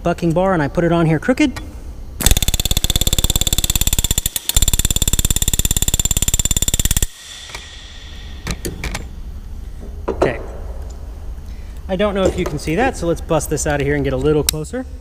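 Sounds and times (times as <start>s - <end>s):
pneumatic rivet gun hammering: 2.2s - 7.7s, 8.4s - 9.1s.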